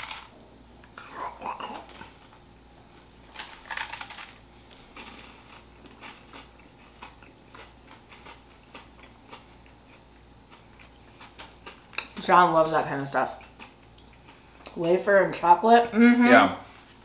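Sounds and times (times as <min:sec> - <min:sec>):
crunch of biting wafer bar: 0:03.3 - 0:04.4
chewing crunches: 0:03.3 - 0:12.2.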